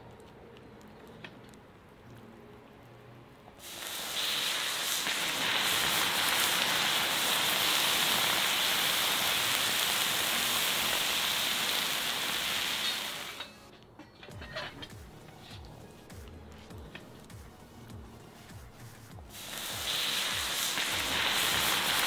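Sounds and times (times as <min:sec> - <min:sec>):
lava sizzling on dry ice: 0:03.6 - 0:13.5, 0:19.3 - 0:22.0.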